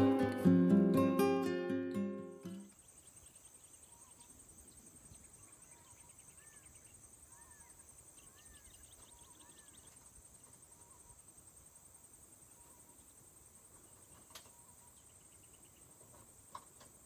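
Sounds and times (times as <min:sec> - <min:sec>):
bird calls and chittering trills: 0:02.5 - 0:11.3, 0:12.4 - 0:16.2
insect chorus trilling: 0:02.6 - 0:17.0.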